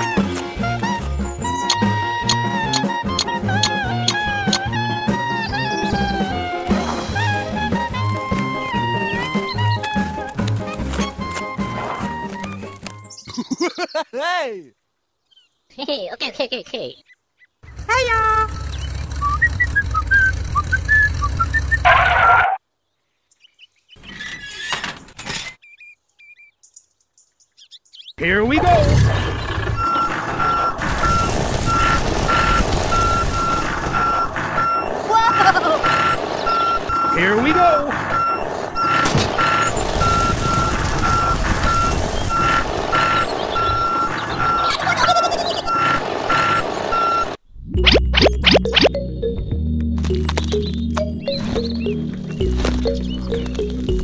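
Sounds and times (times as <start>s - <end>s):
tractor engine rumble: 17.7s - 22.4s
truck reversing alarm beeping: 18.5s - 22.4s, 28.6s - 54.0s
high whistled chirps: 29.8s - 48.9s.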